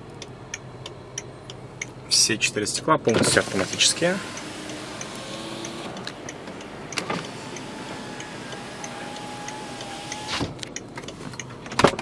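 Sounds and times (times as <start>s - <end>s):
power window motor whine: 3.3s - 10.6s.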